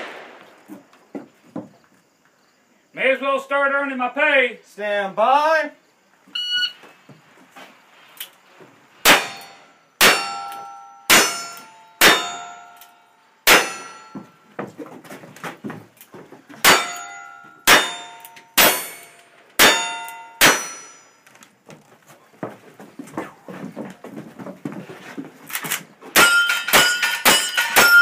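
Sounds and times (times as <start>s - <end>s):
steel target ringing: 9.1s - 12.8s, 13.5s - 14.4s, 16.6s - 21.2s, 26.2s - 28.0s
light knocks and shuffling: 14.4s - 16.6s, 21.3s - 26.1s.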